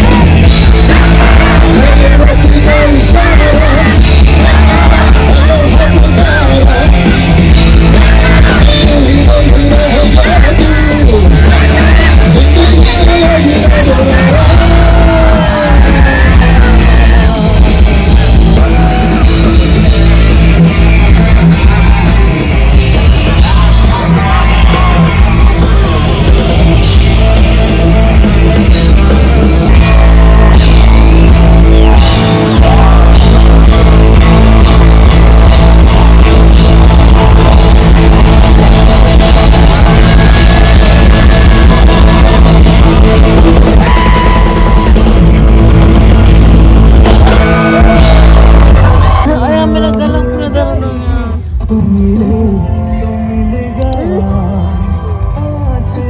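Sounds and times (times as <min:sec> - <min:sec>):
person singing: 0:00.0 - 0:19.7, 0:47.0 - 0:56.0
drum kit: 0:00.0 - 0:49.4
electric guitar: 0:00.0 - 0:56.0.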